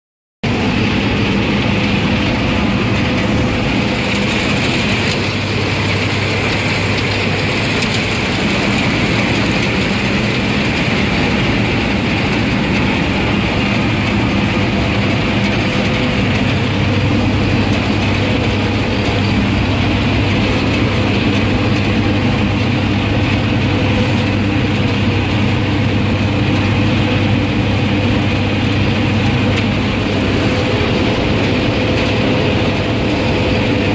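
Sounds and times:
diesel engine drone: 0:00.4 - 0:33.9
threshing machinery clatter: 0:00.5 - 0:33.9.

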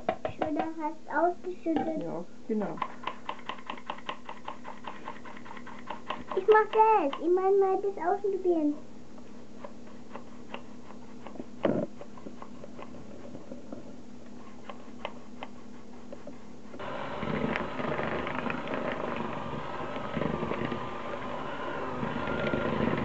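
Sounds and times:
electric hand mixer running: 0:16.8 - 0:23.0.

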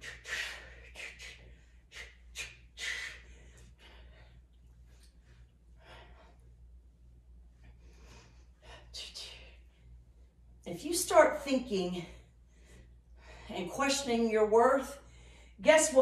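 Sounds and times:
woman breathing hard: 0:00.0 - 0:06.8, 0:07.6 - 0:09.7, 0:12.0 - 0:13.6.

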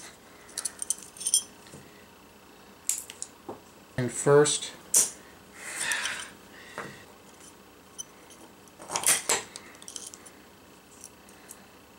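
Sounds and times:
small metal parts clicking and scraping: 0:00.5 - 0:01.5, 0:07.4 - 0:10.3.

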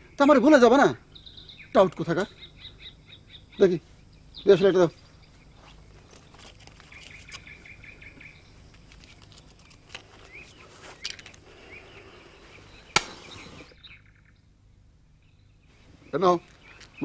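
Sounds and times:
small birds chirping: 0:00.0 - 0:17.0
sharp loud click: 0:12.9 - 0:13.4.

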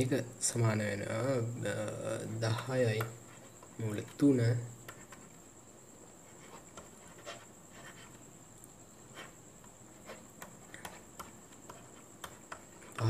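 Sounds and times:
faint high-pitched whine: 0:00.0 - 0:13.0
stylus tapping and scratching: 0:02.0 - 0:13.0.

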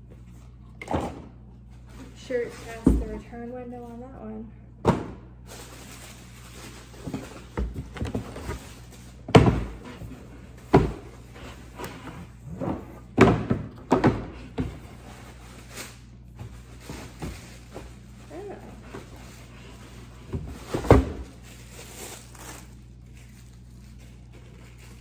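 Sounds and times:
cardboard packaging rustling: 0:05.5 - 0:09.3, 0:14.9 - 0:25.0.

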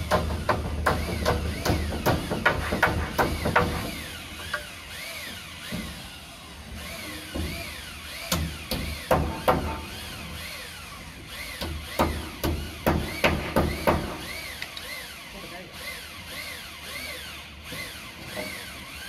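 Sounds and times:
hammer striking timber: 0:00.0 - 0:04.7, 0:08.3 - 0:09.9, 0:11.5 - 0:14.3.

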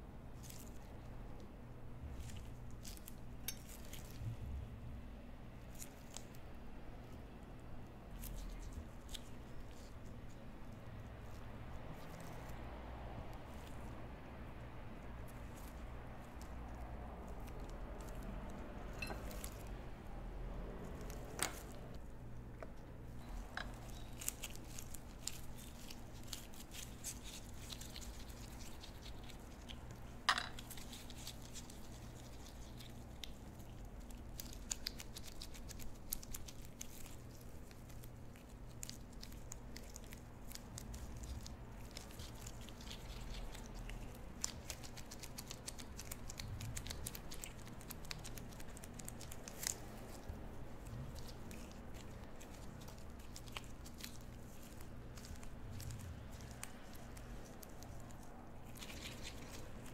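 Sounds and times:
steady low hum: 0:00.0 - 0:59.9
sticky dough squishing: 0:00.0 - 0:59.9
rubber gloves clicking on paste: 0:23.6 - 0:59.9.

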